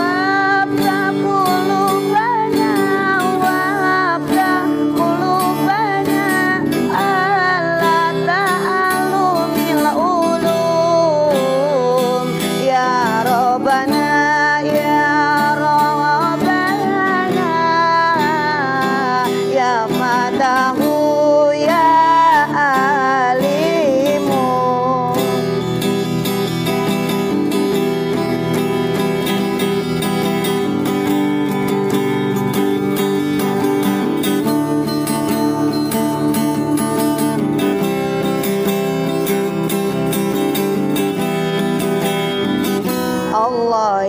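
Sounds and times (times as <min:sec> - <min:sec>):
strummed nylon-string guitar: 0:00.0 - 0:44.0
man singing: 0:43.3 - 0:44.0.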